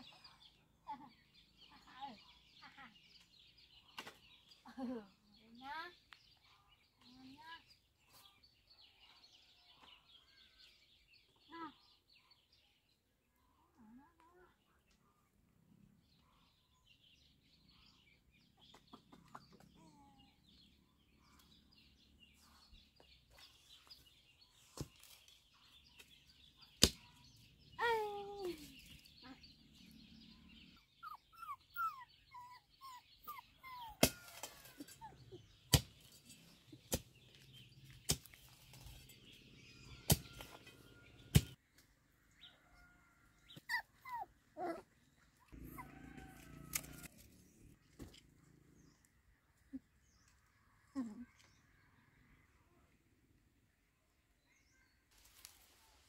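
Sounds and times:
birds chirping: 14.6s - 52.1s.

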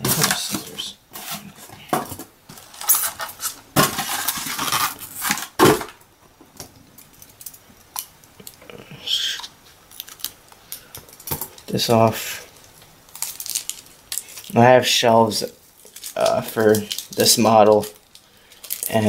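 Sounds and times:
foam tray scraping: 0.0s - 5.9s
plastic wrap rustling: 0.0s - 6.1s, 6.7s - 19.0s.

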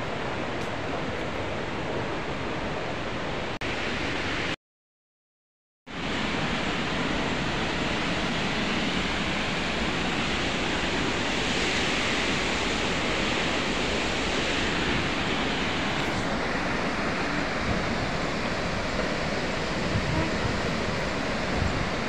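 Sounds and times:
waterfall rushing: 6.0s - 22.0s.

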